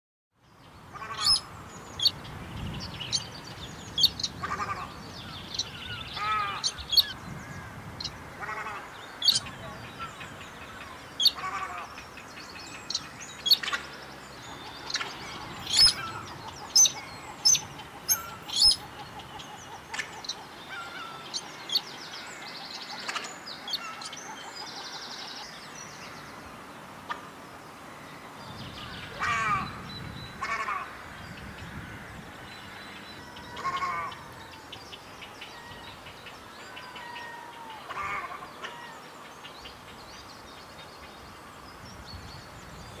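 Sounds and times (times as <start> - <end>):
bird calling nasal notes: 14.4 - 21.9.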